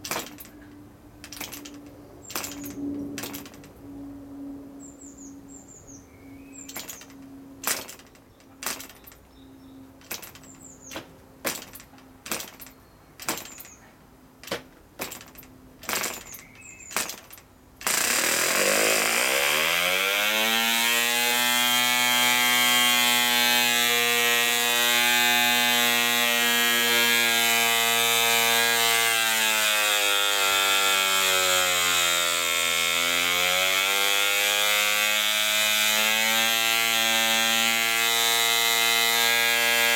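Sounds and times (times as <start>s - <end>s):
propeller flicking clicks: 0.0s - 3.8s, 6.7s - 19.6s
model engine buzzing: 15.0s - 39.9s.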